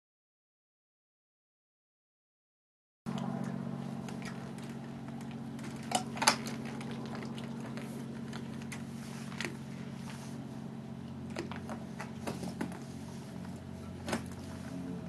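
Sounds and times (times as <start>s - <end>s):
steady low hum: 3.1s - 15.0s.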